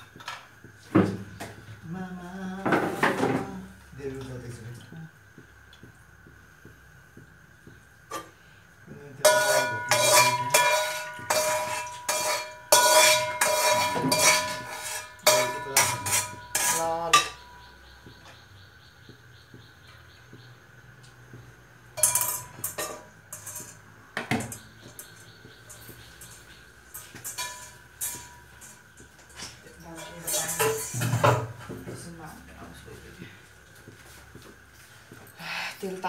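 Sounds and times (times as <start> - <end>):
metal utensils clanking on a pan: 9.1 - 17.8, 21.9 - 32.0.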